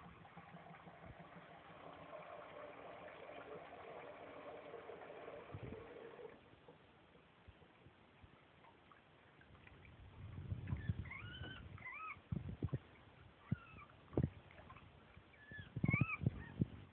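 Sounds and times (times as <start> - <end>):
water splashing in a sink: 0.0 - 6.4
guinea pig squeaking: 10.7 - 12.2, 13.4 - 13.9, 15.3 - 16.6.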